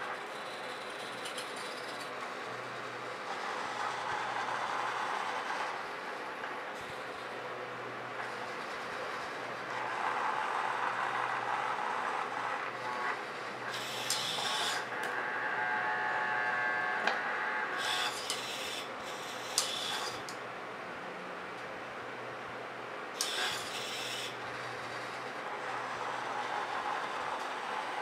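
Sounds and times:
servo motors whining: 13.7s - 17.0s, 17.7s - 20.3s, 23.2s - 27.5s.

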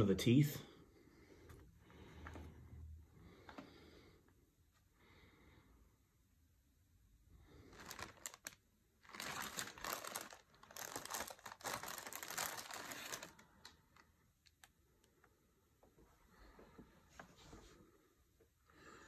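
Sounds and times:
plastic bag crinkling: 7.5s - 14.7s.

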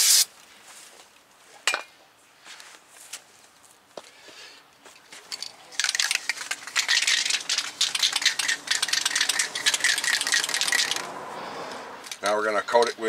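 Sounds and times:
aerosol can ball rattling: 5.3s - 11.1s.

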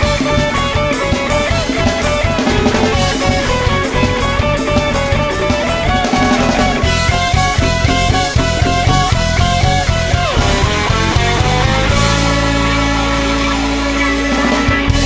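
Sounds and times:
rock music with guitar and drums: 0.0s - 15.0s.

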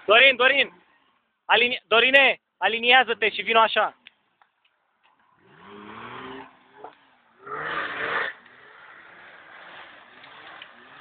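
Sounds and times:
off-road vehicle engine revving: 5.1s - 11.0s.

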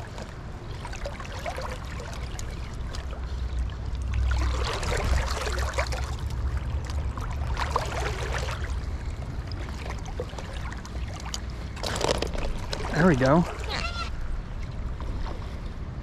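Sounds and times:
creek water splashing: 0.0s - 16.0s
steady low rumble: 0.0s - 16.0s.

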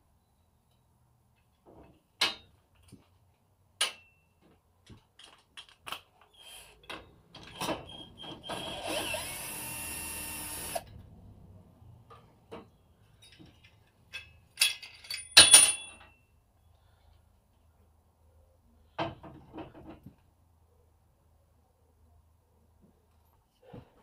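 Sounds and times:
cordless drill spinning: 8.4s - 10.9s
tools clattering down: 12.1s - 16.2s.

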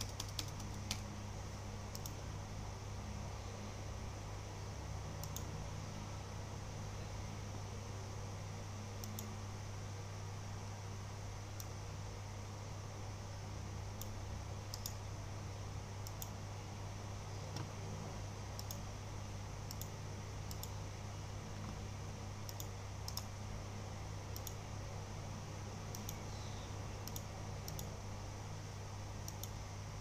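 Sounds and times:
computer keys clicking: 0.0s - 1.1s, 1.9s - 2.2s, 5.2s - 5.5s, 9.0s - 9.3s, 14.0s - 15.0s, 16.0s - 16.4s, 18.5s - 18.8s, 19.6s - 20.8s, 22.4s - 23.3s, 24.3s - 24.6s, 25.9s - 26.3s, 27.0s - 27.9s, 29.2s - 29.6s
low electrical hum: 0.0s - 30.0s.

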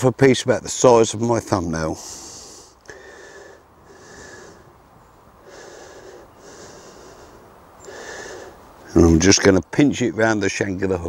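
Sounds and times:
man breathing heavily: 2.0s - 8.8s.

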